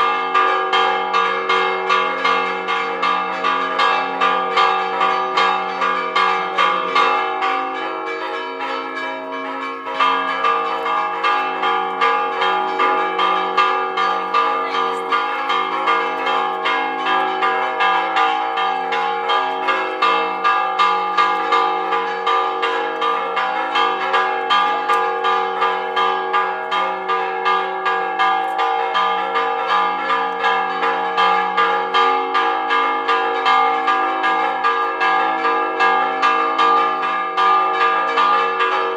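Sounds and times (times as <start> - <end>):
church bells ringing: 0.0 - 38.9.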